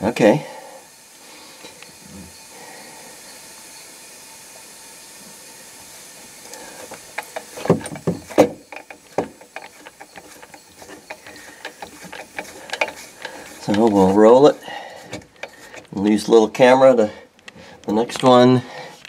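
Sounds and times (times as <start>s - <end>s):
compressed air hissing: 0.0s - 17.8s
sharp clicks and knocks: 6.5s - 16.0s.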